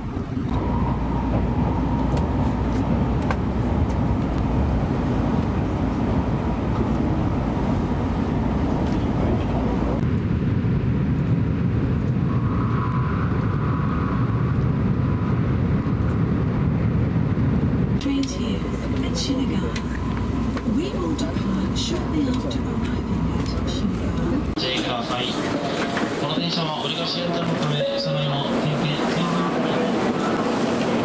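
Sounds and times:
train rumble inside carriage: 0.0 - 31.0.

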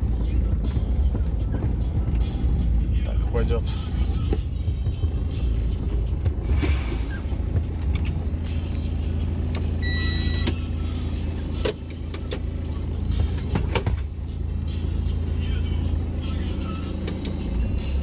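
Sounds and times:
diesel engine idling: 0.0 - 18.0
short electronic beep: 9.8 - 10.6.

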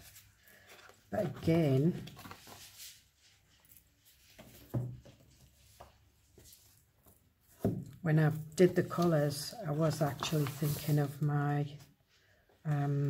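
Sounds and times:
paper rustling: 0.0 - 7.2, 8.6 - 11.3.

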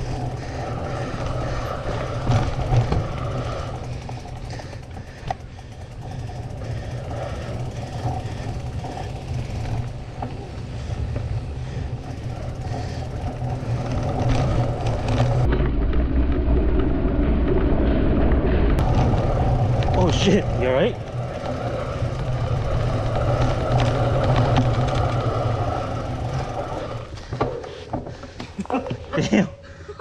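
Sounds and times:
mountain bike rattling: 0.0 - 29.8.

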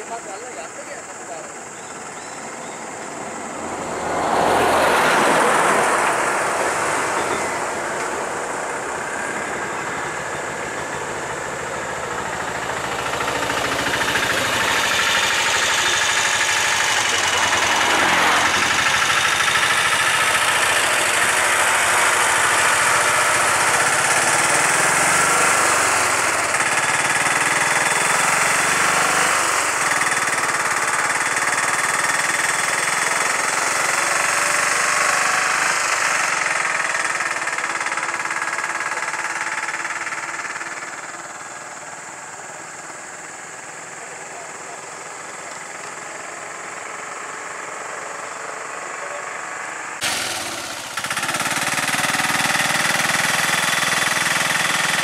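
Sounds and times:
three-wheeler engine running: 0.0 - 55.0
vehicles driving past: 0.0 - 55.0.

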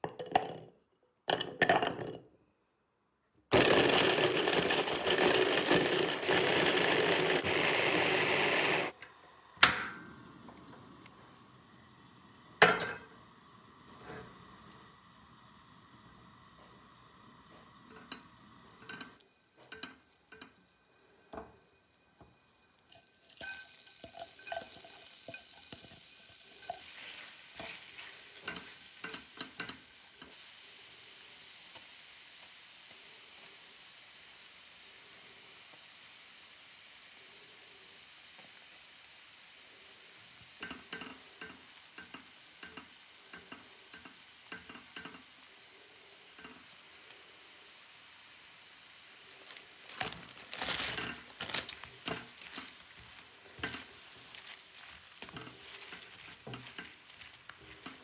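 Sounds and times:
garlic sizzling in a frying pan: 3.5 - 58.0
spatula scraping a pan: 23.4 - 30.5, 49.3 - 58.0.

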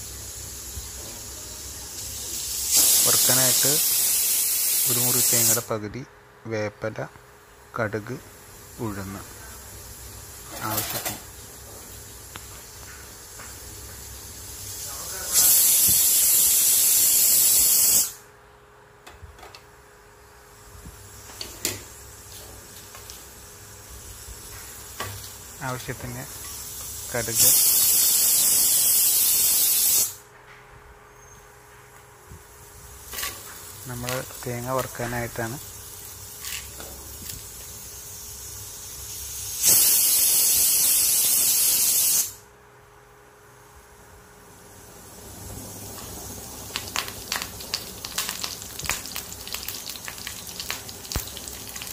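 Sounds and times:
oil sizzling in a frying pan: 0.0 - 5.5, 21.0 - 30.2, 32.5 - 42.4, 44.6 - 51.9
pressure cooker steam hiss: 0.0 - 5.8, 8.3 - 18.3, 23.1 - 30.3, 32.6 - 42.5, 44.4 - 51.9.

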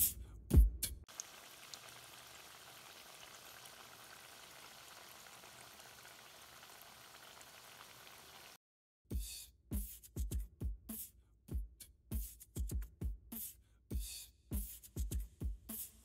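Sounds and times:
food sizzling in hot oil: 1.1 - 8.6.

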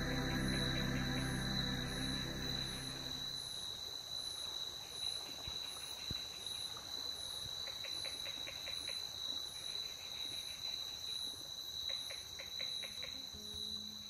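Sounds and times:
high insect chirp: 0.0 - 3.6
insect high buzz: 0.0 - 3.6.

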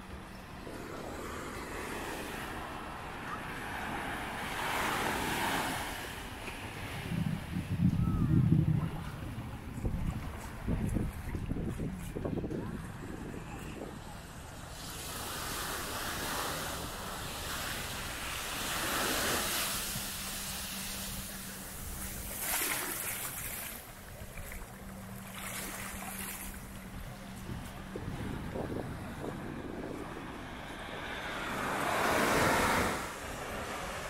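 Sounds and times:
wind rumble on microphone: 0.0 - 34.0
surf washing onto beach: 14.6 - 34.0.

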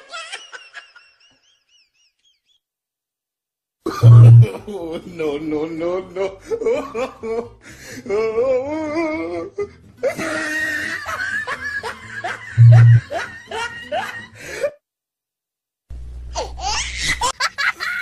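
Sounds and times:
loud low hum: 4.0 - 4.5, 12.6 - 13.0
people laughing: 10.0 - 14.4.

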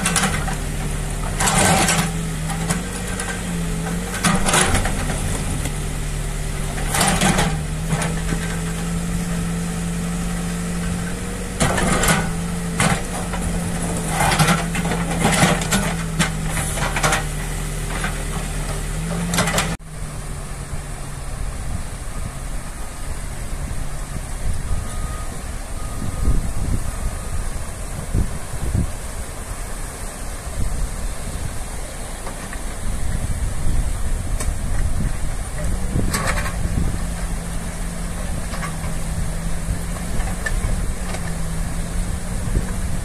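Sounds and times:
bucket clanking on asphalt: 0.0 - 5.9, 10.8 - 19.8, 34.4 - 41.5
backhoe diesel engine: 0.0 - 43.0
river rushing: 0.0 - 43.0.

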